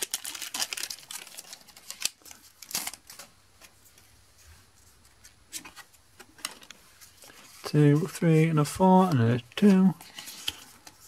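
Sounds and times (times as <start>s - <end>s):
foil wrapper crinkling and tearing: 0.0s - 3.3s
cards being handled: 4.9s - 11.0s.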